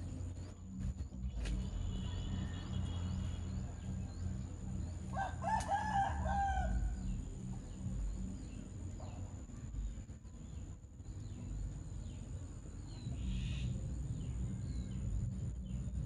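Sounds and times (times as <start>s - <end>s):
small birds chirping: 0.0s - 16.0s
steady low rumble: 0.0s - 16.0s
rooster crowing: 5.1s - 7.1s.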